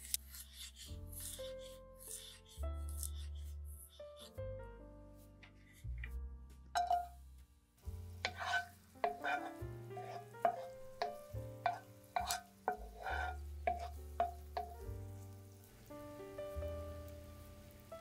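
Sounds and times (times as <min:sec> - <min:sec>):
soft piano music: 0:00.1 - 0:18.0
utensil clinking in dish: 0:06.8 - 0:07.2.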